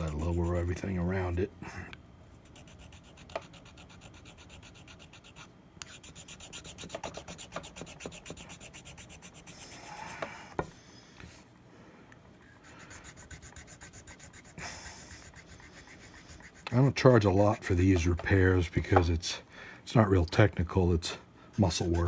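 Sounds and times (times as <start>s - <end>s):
hand file rasping: 0.0s - 0.8s, 2.5s - 10.2s, 12.7s - 17.8s.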